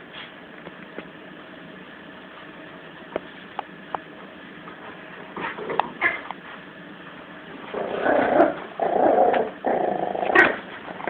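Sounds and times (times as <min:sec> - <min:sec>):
puppy play-growling: 0:05.3 - 0:06.4, 0:07.6 - 0:11.0.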